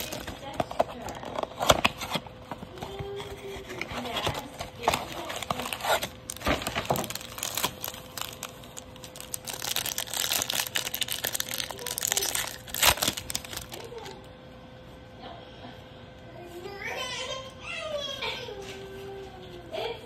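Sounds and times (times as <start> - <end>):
foil wrapper ripping: 0.0 - 2.2, 4.0 - 14.2
foil wrapper crinkling: 0.0 - 14.3.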